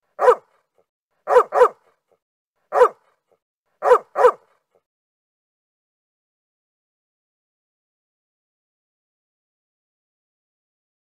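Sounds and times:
dog barking: 0.1s - 0.6s, 1.2s - 2.0s, 2.7s - 3.2s, 3.8s - 4.6s.

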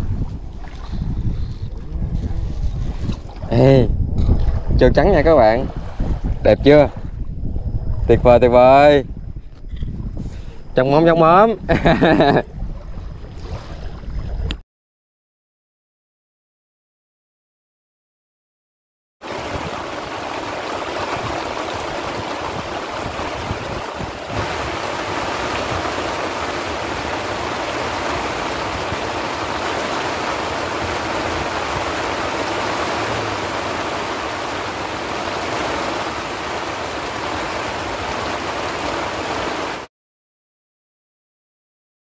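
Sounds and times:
heavy rain on a lake: 19.2s - 39.9s.

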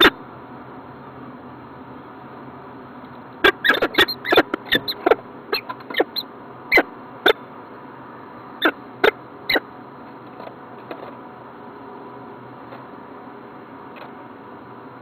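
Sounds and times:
falcon squeaky chupping calls: 3.4s - 7.4s.

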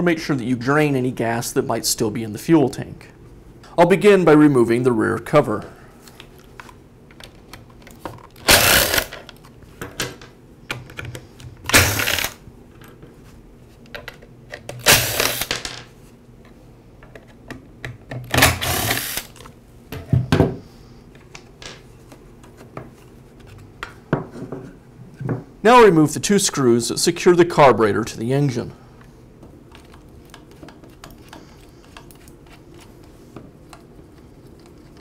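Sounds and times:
electric screwdriver running: 8.5s - 9.2s, 11.7s - 12.4s, 14.9s - 15.5s, 18.4s - 19.4s.

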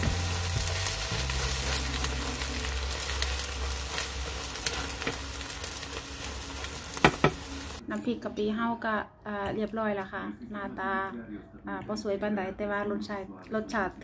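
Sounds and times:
egg sizzling in oil: 0.0s - 7.8s
spatula turning egg: 0.0s - 7.8s.

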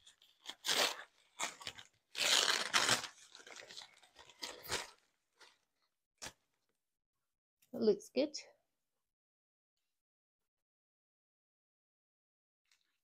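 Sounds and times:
packaging crinkling: 0.0s - 5.6s.

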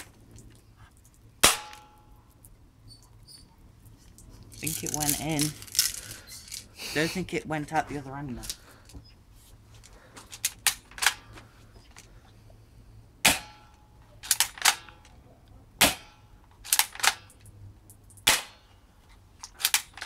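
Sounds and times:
toy rifle cracks: 14.2s - 15.2s, 16.6s - 17.4s, 19.4s - 20.0s.

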